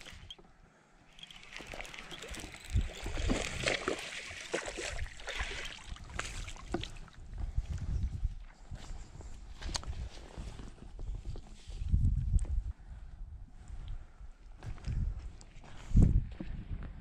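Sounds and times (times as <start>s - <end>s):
fishing reel clicks: 1.1s - 4.6s
fish splashing in shallow water: 1.1s - 7.3s.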